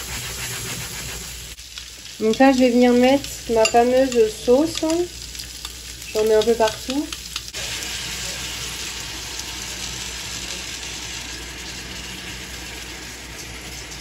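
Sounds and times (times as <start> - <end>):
fish and onions sizzling in a pan: 0.0 - 14.0.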